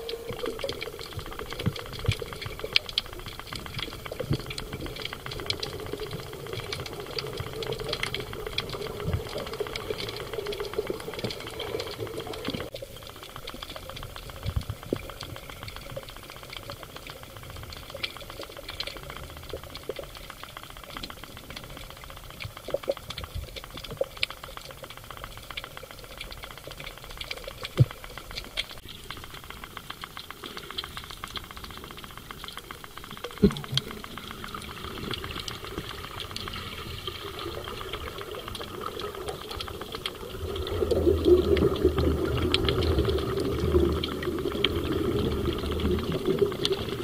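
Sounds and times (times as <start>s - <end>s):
underwater crackle of rapid clicks: 0.0s - 47.0s.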